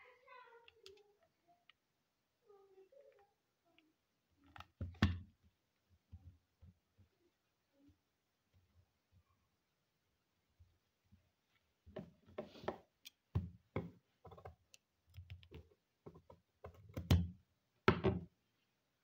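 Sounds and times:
craft tools clicking and tapping: 0:11.9 - 0:17.3.

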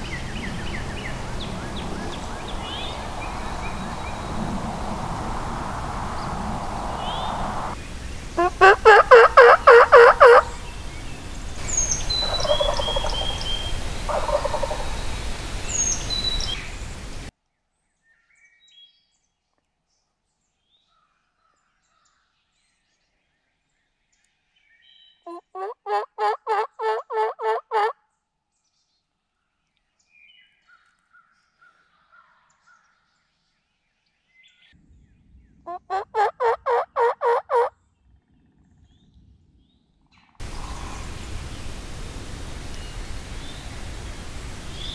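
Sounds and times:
background hiss: 0:00.0 - 0:17.3, 0:40.4 - 0:44.9
turkey gobbling: 0:08.4 - 0:10.7, 0:11.6 - 0:15.4, 0:25.3 - 0:27.9, 0:35.7 - 0:37.7.

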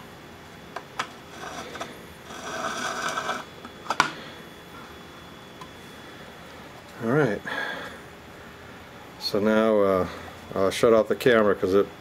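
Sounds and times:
metal tray scraping: 0:01.3 - 0:03.5.

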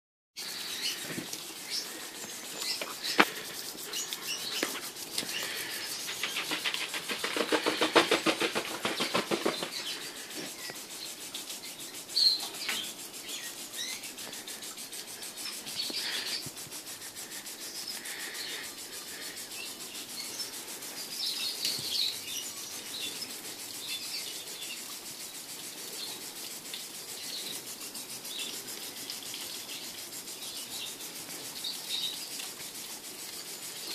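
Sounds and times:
birds chirping: 0:00.4 - 0:25.0
sprinkler spraying water: 0:00.4 - 0:33.9.

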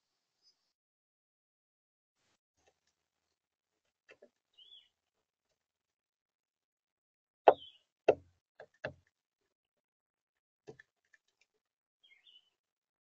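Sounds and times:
faint high bird chirp: 0:00.0 - 0:00.8, 0:04.5 - 0:05.0, 0:07.5 - 0:07.9, 0:12.0 - 0:12.6
bird bill knocking on plastic: 0:07.5 - 0:09.1.

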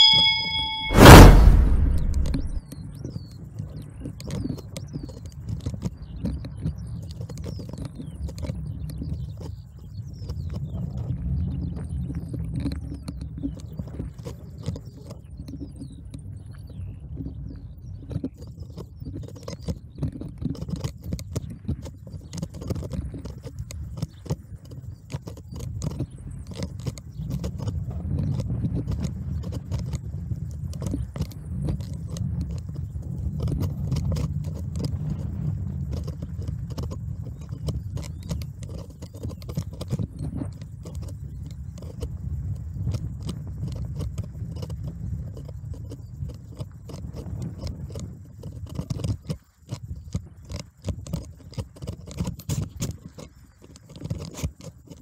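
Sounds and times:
wind on microphone: 0:00.0 - 0:55.0
bike rattling and clicking: 0:03.3 - 0:16.3, 0:17.9 - 0:55.0
bicycle tyres rumbling: 0:17.3 - 0:55.0.

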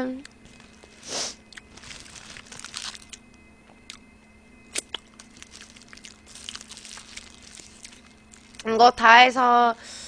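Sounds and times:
faint room heater hum: 0:00.0 - 0:10.0
chewing: 0:00.2 - 0:03.2, 0:04.8 - 0:08.7
paper and foil crinkling: 0:00.5 - 0:03.2, 0:05.0 - 0:08.7.

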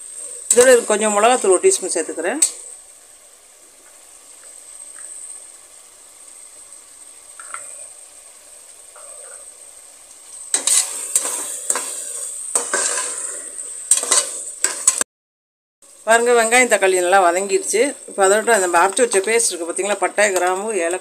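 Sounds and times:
masala sizzling in oil: 0:00.0 - 0:15.1, 0:15.8 - 0:21.0
metal ladle scraping a pot: 0:10.5 - 0:15.0.

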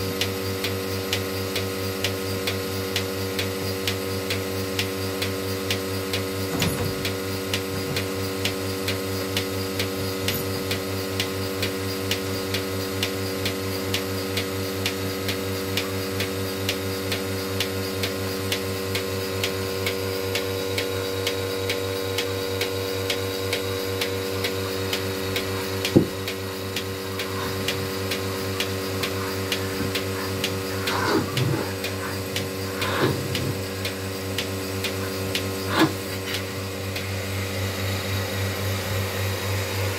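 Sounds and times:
vacuum pump humming: 0:00.0 - 0:39.9
pulsator clicking: 0:16.2 - 0:37.0.

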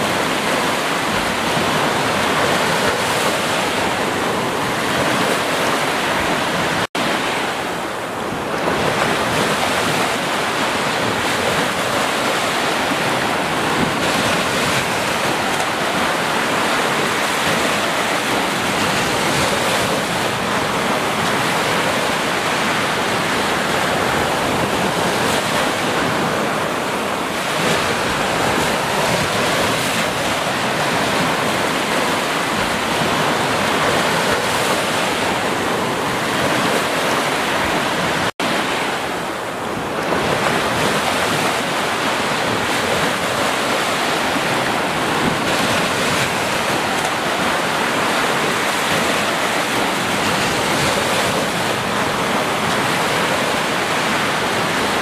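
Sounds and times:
waves breaking on beach: 0:00.0 - 0:55.0.

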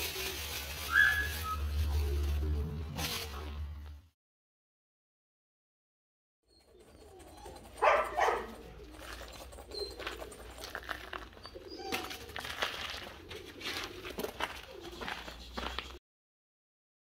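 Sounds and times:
pigeons cooing: 0:06.5 - 0:16.0
scuffs and crunches on gravel: 0:08.8 - 0:16.0.

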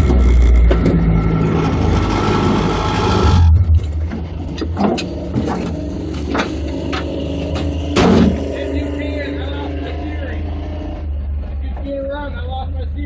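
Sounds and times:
off-road vehicle engine hum: 0:00.0 - 0:13.0
sharp knocks and rattles: 0:03.7 - 0:08.5.

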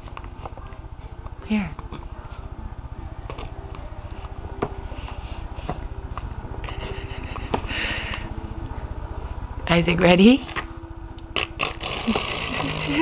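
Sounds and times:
low hum: 0:00.0 - 0:13.0
hissy spit burst: 0:11.4 - 0:13.0.

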